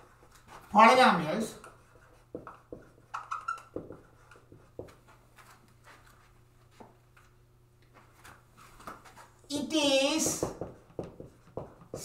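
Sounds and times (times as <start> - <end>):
marker squeaking on whiteboard: 1.6 - 5.0.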